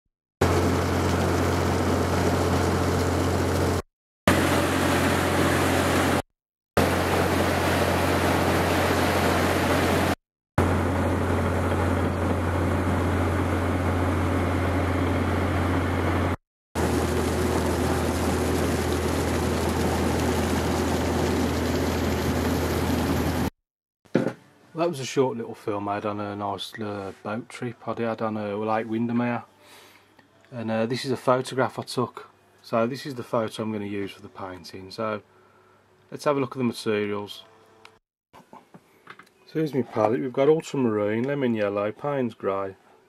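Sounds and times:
boat engine droning: 0.4s - 6.2s, 6.8s - 23.5s
rushing water and air: 3.6s - 6.2s, 6.8s - 10.2s.

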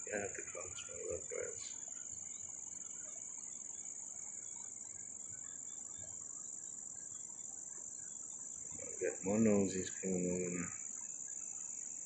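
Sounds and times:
faint short insect chirps: 0.0s - 12.0s
insects in shrill chorus: 0.0s - 12.0s.

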